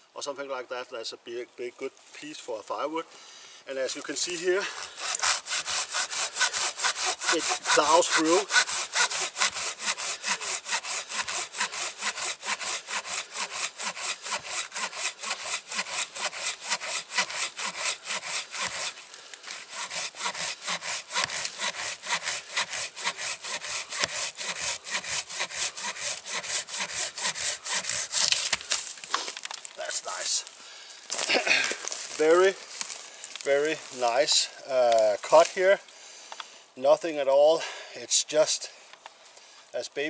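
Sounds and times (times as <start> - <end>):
handsaw cutting through log: 4.0 - 29.4.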